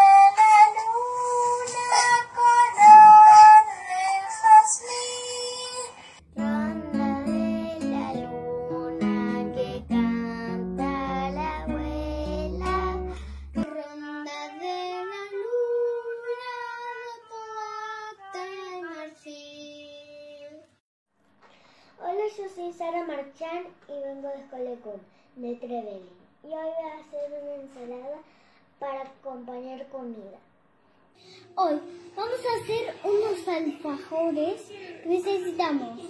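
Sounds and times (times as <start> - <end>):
low instrumental backing: 6.2 - 13.7.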